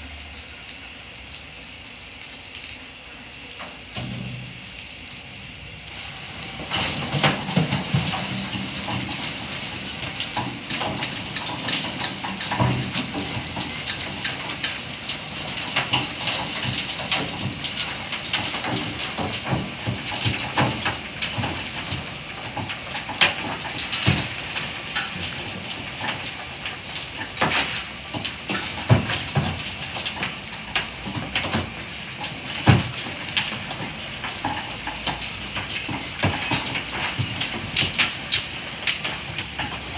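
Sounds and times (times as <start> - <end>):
steam locomotive hissing: 2.8 - 11.6
metallic clanks and knocks: 6.6 - 14.8, 27.2 - 39.9.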